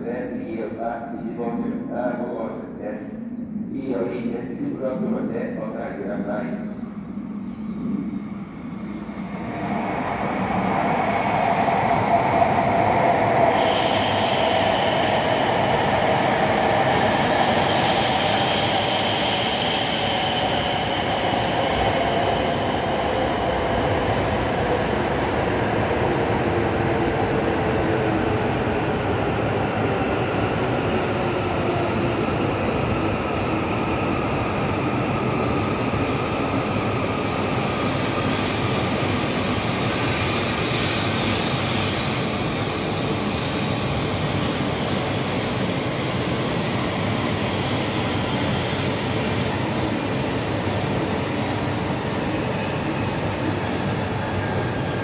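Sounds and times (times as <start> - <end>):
train pulling in: 0.0 - 55.0
falling whine: 6.5 - 25.9
high brake squeal: 13.2 - 24.2.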